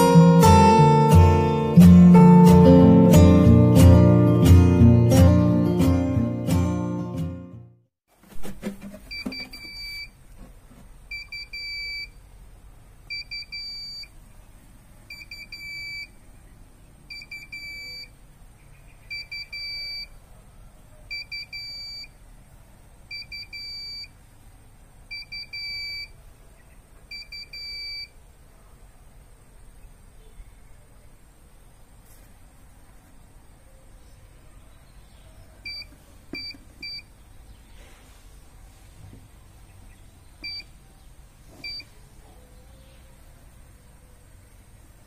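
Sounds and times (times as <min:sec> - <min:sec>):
meter alarm beeping: 0:09.1 - 0:10.1, 0:11.1 - 0:12.1, 0:13.1 - 0:14.1, 0:15.1 - 0:16.1, 0:17.1 - 0:18.1, 0:19.1 - 0:20.1, 0:21.1 - 0:22.1, 0:23.1 - 0:24.1, 0:25.1 - 0:26.1, 0:27.1 - 0:28.1, 0:35.6 - 0:37.1, 0:40.4 - 0:40.7, 0:41.6 - 0:41.9.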